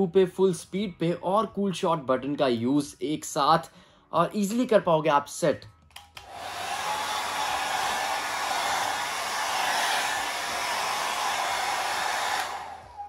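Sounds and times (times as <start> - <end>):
hair dryer blowing: 6.2 - 13.0.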